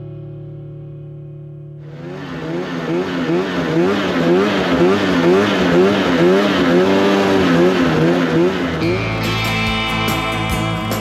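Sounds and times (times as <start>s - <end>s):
snowmobile engine under throttle: 1.8s - 9.2s.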